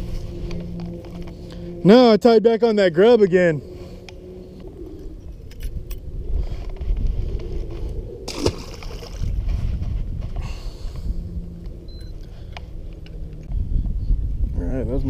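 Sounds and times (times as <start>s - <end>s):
wind buffeting microphone: 2.8s - 15.0s
fish splashing into water: 8.3s - 9.4s.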